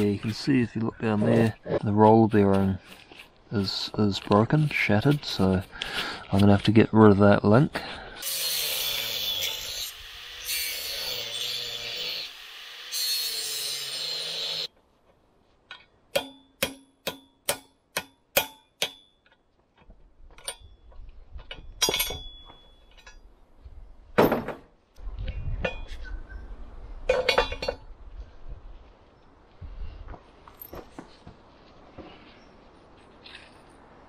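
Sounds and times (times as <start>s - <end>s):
angle grinder cutting steel: 8.2s - 14.7s
sharp ringing metal knocks: 16.1s - 19.4s, 21.6s - 23.2s.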